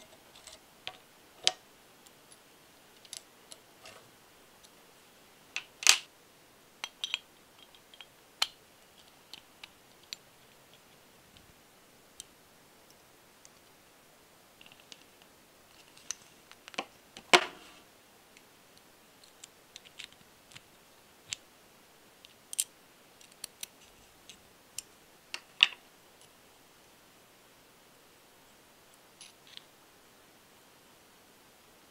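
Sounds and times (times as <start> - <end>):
small metal parts clicking: 22.5 - 23.7.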